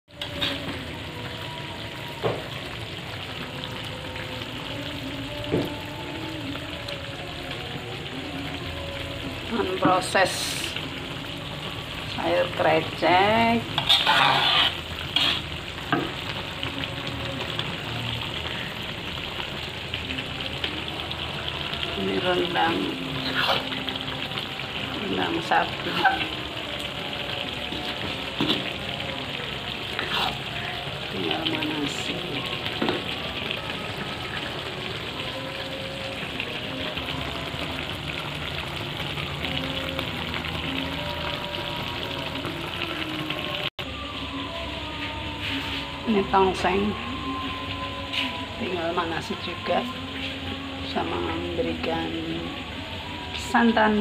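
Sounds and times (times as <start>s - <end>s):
food sizzling in a pan: 0.1s - 54.0s
spatula scraping a pan: 13.7s - 15.6s.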